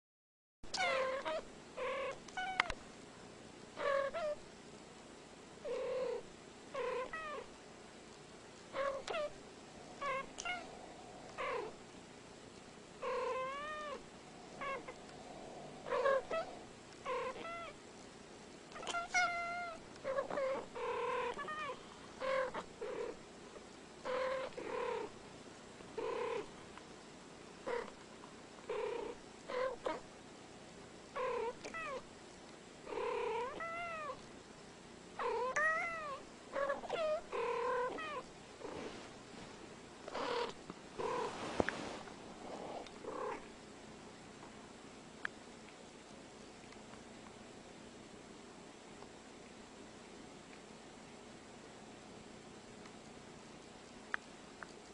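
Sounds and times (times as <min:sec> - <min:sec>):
cats meowing and chirping: 0:03.8 - 0:04.4, 0:15.9 - 0:16.6, 0:17.3 - 0:17.8, 0:18.7 - 0:22.7, 0:33.4 - 0:34.2, 0:35.3 - 0:38.2.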